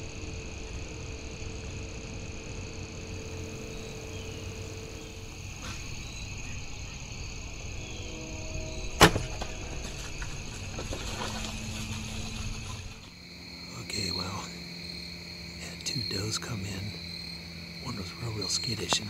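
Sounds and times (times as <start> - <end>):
crickets and insects chorus: 0.0 - 19.0
bow crack: 8.7 - 13.1
rustling and cracking: 8.9 - 13.2.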